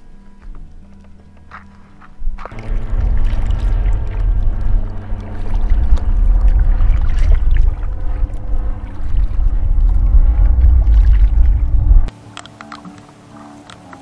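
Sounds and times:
low rumble: 0:02.5 - 0:12.1
paddle stroking through water: 0:02.6 - 0:12.1.

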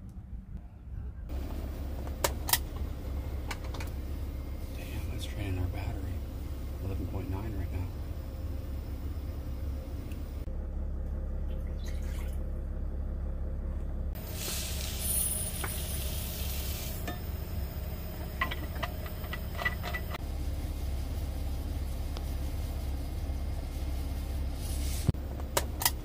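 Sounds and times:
steady low hum: 0:00.0 - 0:26.0.

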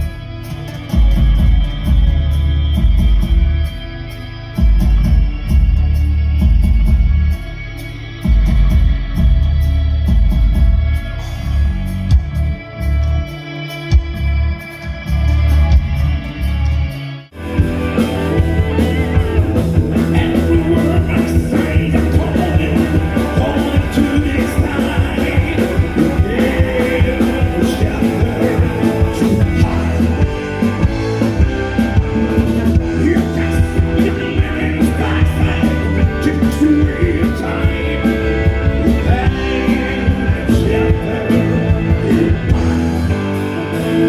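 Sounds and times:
live rock band: 0:00.0 - 0:44.0
person singing: 0:17.4 - 0:44.0.

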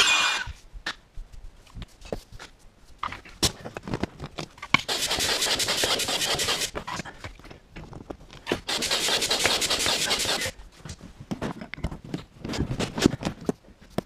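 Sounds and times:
air hissing through pump hose: 0:08.7 - 0:10.5.

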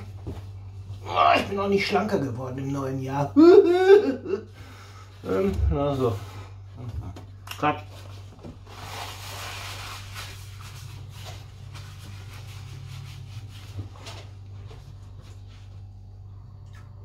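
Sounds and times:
low hum: 0:00.0 - 0:17.0
rubbing and rustling: 0:07.8 - 0:15.9.

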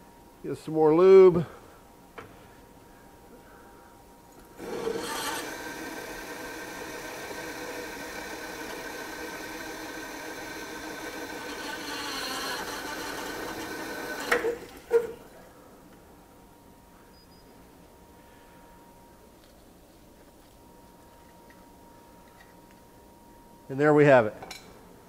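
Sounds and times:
drill press cutting steel: 0:04.6 - 0:15.2.

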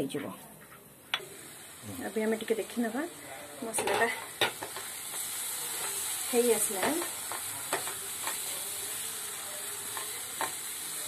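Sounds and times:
masala sizzling in oil: 0:00.8 - 0:11.0
spatula scraping and tapping pan: 0:03.7 - 0:06.0, 0:06.6 - 0:08.5, 0:09.9 - 0:10.6.

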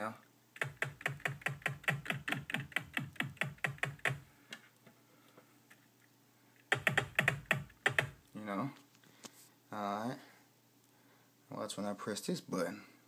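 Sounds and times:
keyboard keys clicking: 0:00.6 - 0:04.2, 0:06.7 - 0:08.2.

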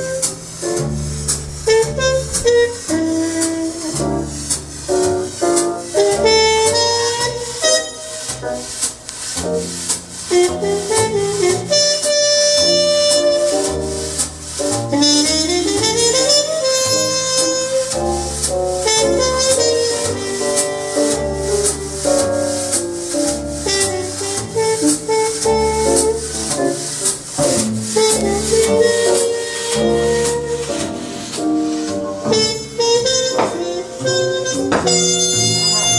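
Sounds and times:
jazz music over loudspeakers: 0:00.0 - 0:35.9
walking bass line: 0:00.0 - 0:35.9.

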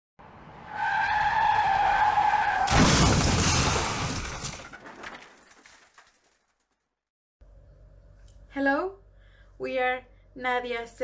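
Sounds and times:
car crash: 0:00.3 - 0:06.9
glass shattering: 0:02.7 - 0:06.8.

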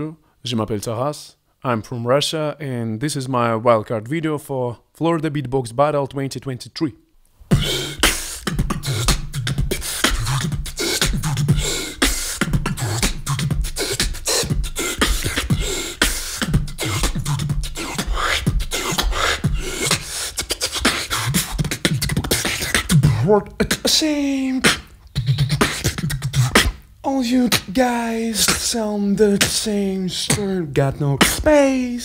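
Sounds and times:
person beatboxing: 0:07.5 - 0:32.0.

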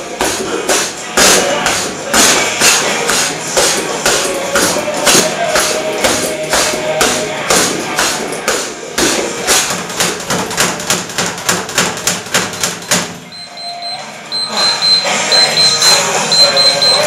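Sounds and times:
punches on speed bag: 0:00.2 - 0:13.2
interval timer beeping: 0:12.6 - 0:17.0.

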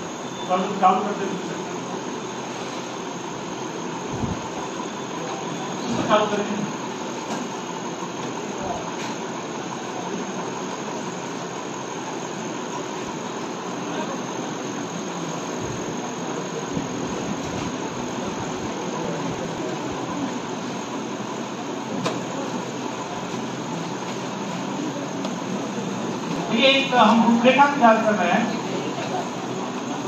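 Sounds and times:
faint steady whine: 0:00.0 - 0:30.0.

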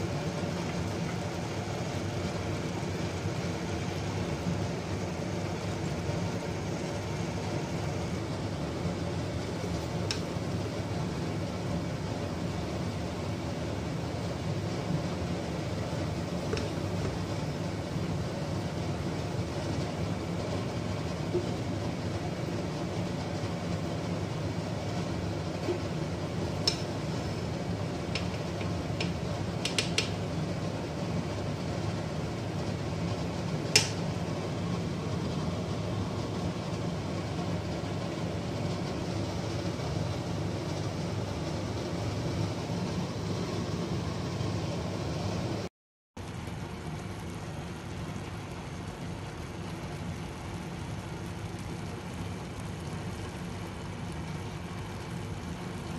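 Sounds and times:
low rumbling background noise: 0:00.0 - 0:55.9
spatula clicking against metal pot: 0:29.0 - 0:30.2.

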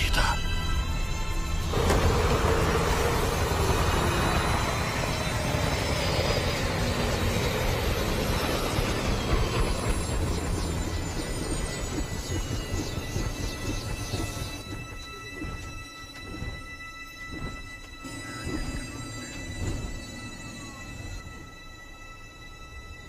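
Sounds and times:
helicopter rotor turning: 0:00.9 - 0:22.6.

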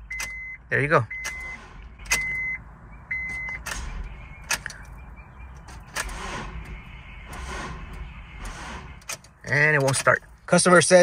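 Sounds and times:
car warning chime beep: 0:00.0 - 0:06.0
ignition clicks: 0:00.0 - 0:10.3.

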